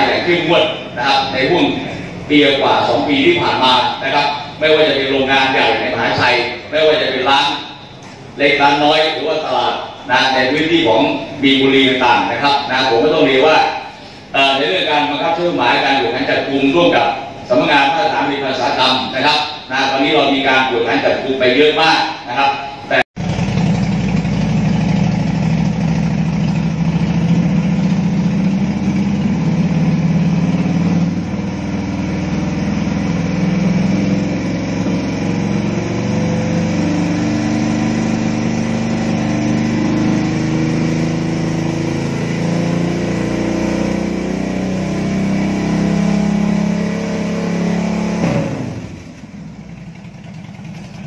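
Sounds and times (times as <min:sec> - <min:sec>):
loud motorcycle engine revving: 0:00.0 - 0:08.8, 0:23.2 - 0:51.0.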